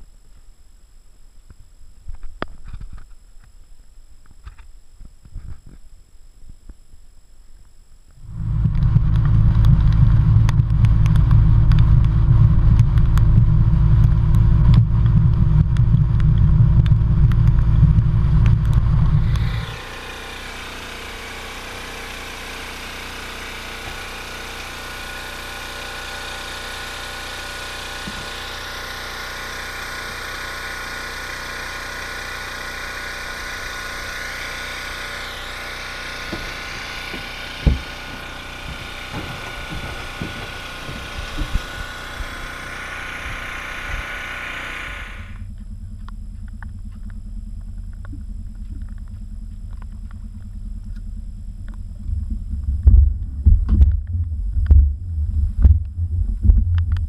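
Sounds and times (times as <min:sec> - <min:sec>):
quiet steady hum: 0:00.0 - 0:19.8, 0:35.0 - 0:57.0
boat engine drone: 0:08.2 - 0:57.0.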